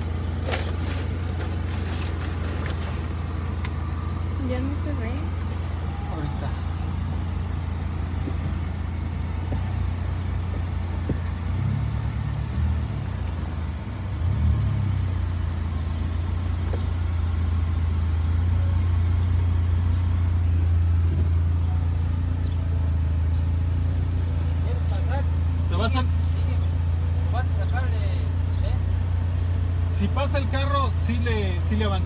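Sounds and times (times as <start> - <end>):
vehicle engine droning: 0.0 - 32.0.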